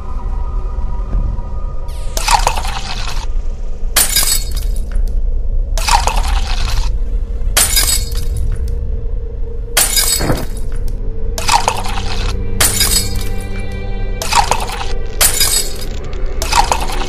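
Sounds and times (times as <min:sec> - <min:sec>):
background music drone: 0:00.0 - 0:17.0
glass shattering: 0:04.0 - 0:04.9, 0:07.6 - 0:08.6, 0:09.8 - 0:10.8, 0:11.4 - 0:13.4, 0:14.2 - 0:17.0.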